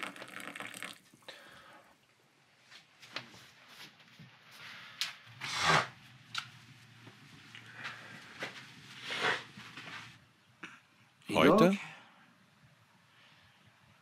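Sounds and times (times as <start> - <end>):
rustling scrapes: 6.6 - 10.2.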